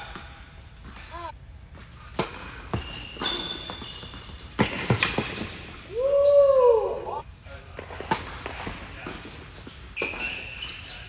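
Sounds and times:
shoe squeaks: 2.7s - 5.1s, 9.6s - 11.0s.

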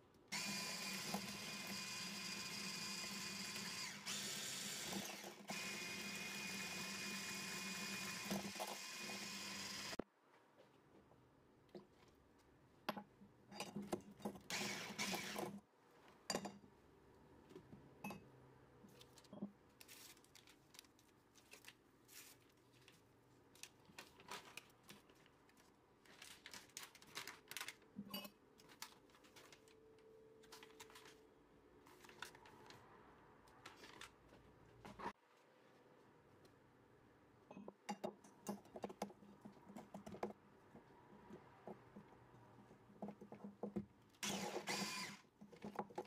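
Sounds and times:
paper sachet rustling: 18.9s - 28.0s, 28.6s - 29.8s, 30.4s - 32.8s.

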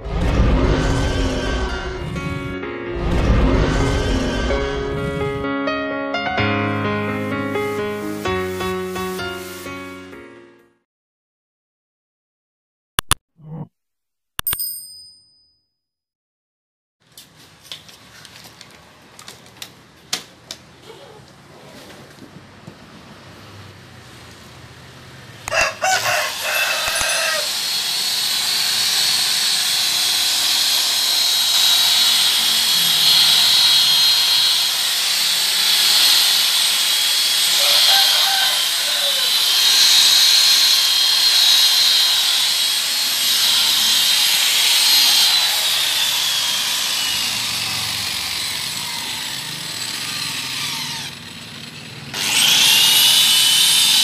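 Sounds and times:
electric car polisher whining: 26.3s - 54.0s.

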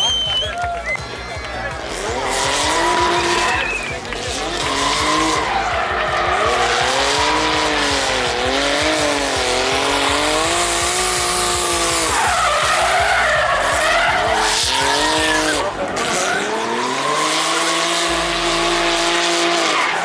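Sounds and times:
car engine revving hard: 1.7s - 20.0s
tyres squealing: 1.8s - 20.0s.

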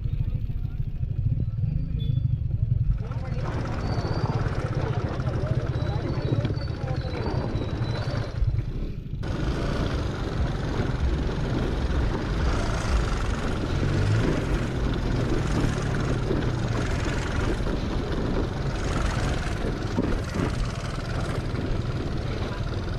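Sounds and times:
scooter engine running: 0.0s - 22.9s
wind and road noise: 0.0s - 22.9s.

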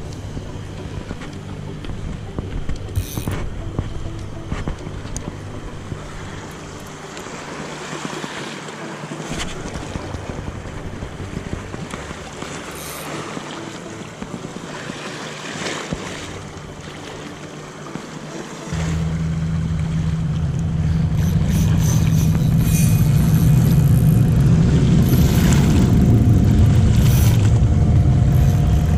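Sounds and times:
boat engine hum: 0.0s - 28.9s
sea ambience: 0.0s - 28.9s
fishing reel handling clicks: 2.8s - 3.5s
wind on microphone: 18.7s - 28.9s.

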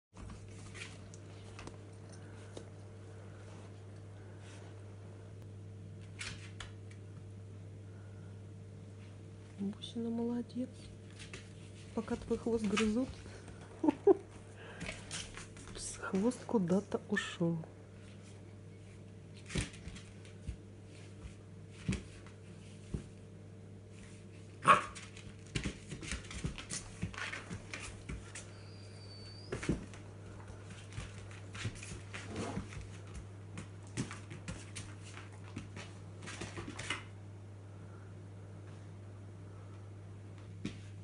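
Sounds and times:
dog barks: 24.6s - 25.0s
dog whimpers: 28.5s - 29.6s.

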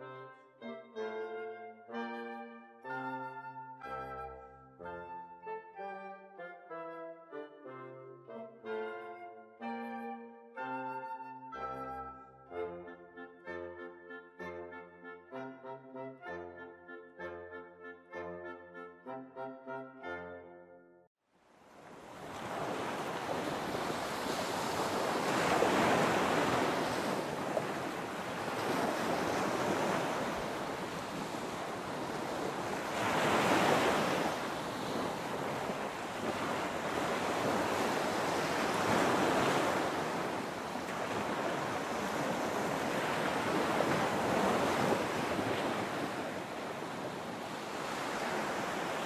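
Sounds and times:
waves breaking and washing back: 21.4s - 49.0s.

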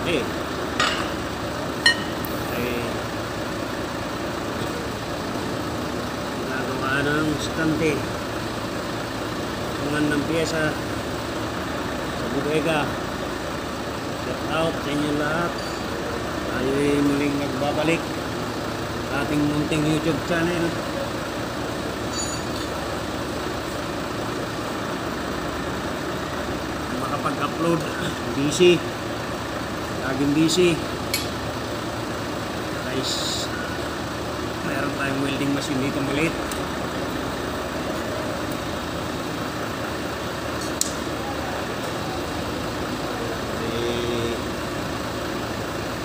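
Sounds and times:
machinery humming: 0.0s - 46.0s
mechanical engine drone: 0.0s - 46.0s
faint metallic clink: 1.8s - 2.2s, 22.1s - 22.8s.

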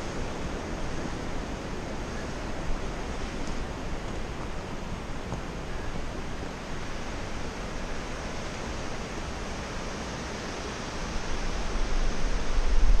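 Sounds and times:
stream rushing through rock: 0.0s - 13.0s
low buffeting rumble: 11.2s - 13.0s.

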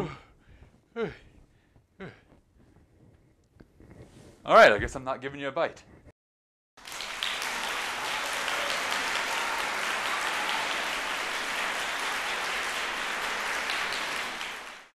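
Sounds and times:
audience applause: 6.8s - 15.0s.

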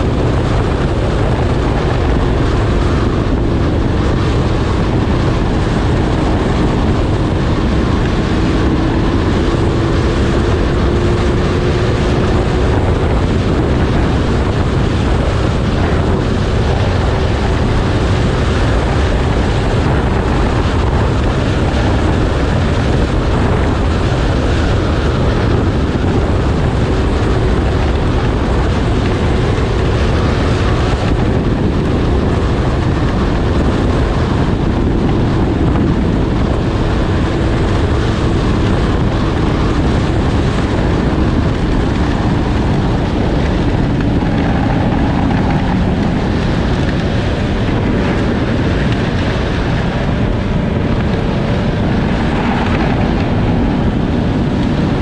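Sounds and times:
snowmobile engine running: 0.0s - 55.0s
wind noise on microphone: 0.0s - 55.0s.

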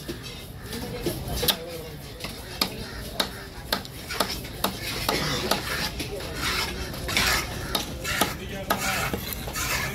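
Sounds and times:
knife scraping strokes: 4.0s - 9.9s.

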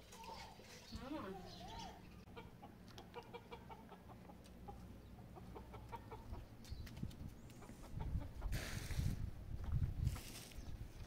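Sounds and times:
chickens clucking: 1.6s - 8.6s.

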